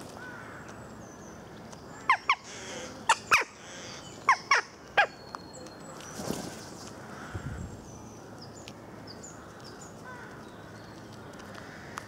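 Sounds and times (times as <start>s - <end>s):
crows calling: 0.2s - 0.8s, 1.9s - 5.1s, 7.0s - 7.6s, 9.3s - 10.4s, 11.5s - 12.0s.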